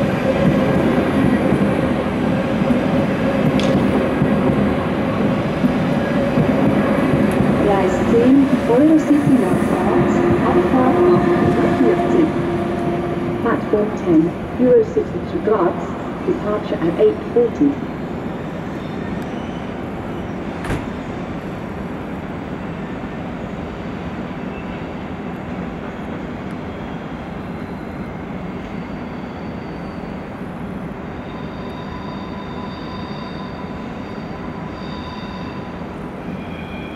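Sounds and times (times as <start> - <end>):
high wheel squeal: 27.6 - 30.4, 31.2 - 36.9.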